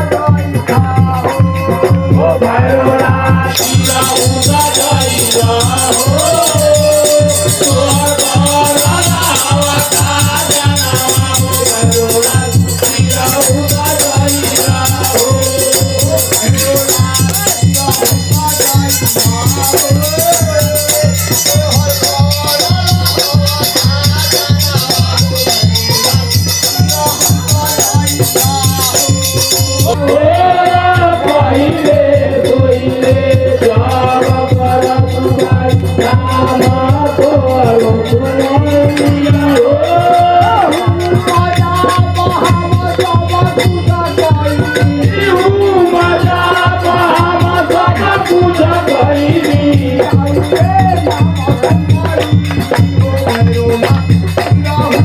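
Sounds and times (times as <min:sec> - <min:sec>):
hand drum beating: 0:00.0 - 0:55.0
men singing into microphones: 0:00.0 - 0:55.0
small hand cymbals clashing: 0:03.5 - 0:30.0, 0:33.6 - 0:55.0.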